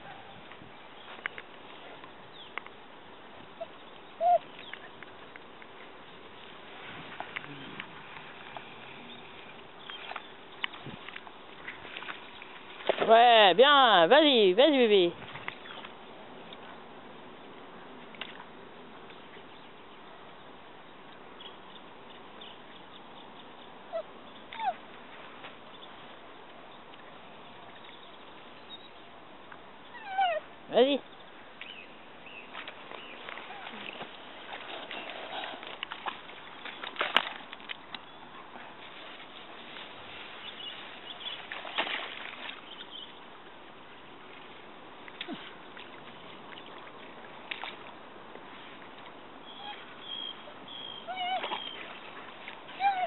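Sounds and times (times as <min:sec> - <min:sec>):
dog whining: 0:04.2 - 0:04.4, 0:23.9 - 0:24.8, 0:30.0 - 0:30.4, 0:51.1 - 0:51.8, 0:52.8 - 0:53.0
dry grass rustling: 0:38.8 - 0:42.6.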